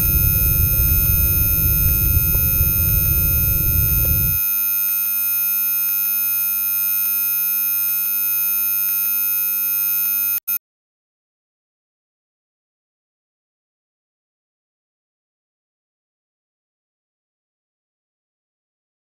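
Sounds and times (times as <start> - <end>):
low rumbling noise: 0.0 - 4.4
high electronic sine tones: 0.0 - 10.6.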